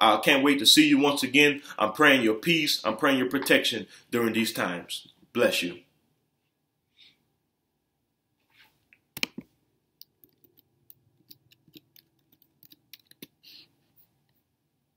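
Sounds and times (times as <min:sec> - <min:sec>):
computer keys clicking: 0:10.0 - 0:13.4.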